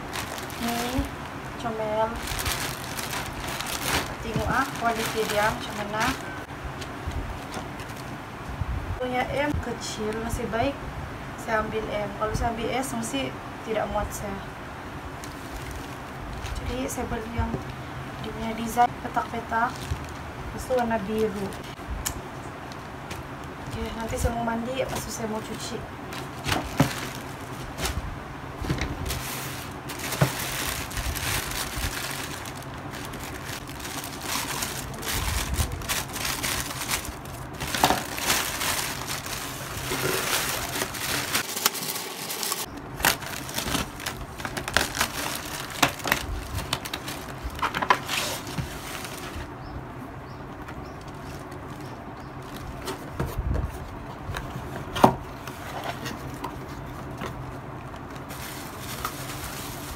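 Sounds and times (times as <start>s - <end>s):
plastic bags crinkling: 0.0s - 8.2s, 15.2s - 16.8s, 19.4s - 21.8s, 26.0s - 28.0s, 28.9s - 49.5s, 57.9s - 59.9s.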